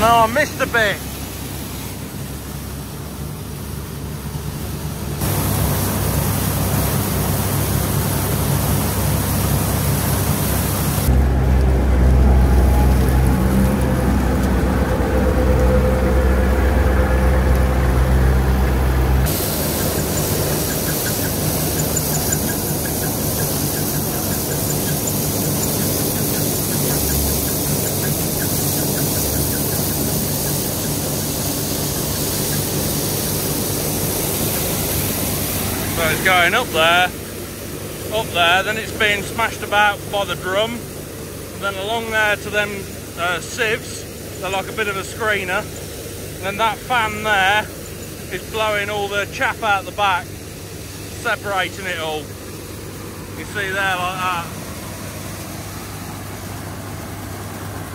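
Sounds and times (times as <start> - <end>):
combine harvester engine drone: 0.0 - 57.9
machine squeak: 19.5 - 33.0.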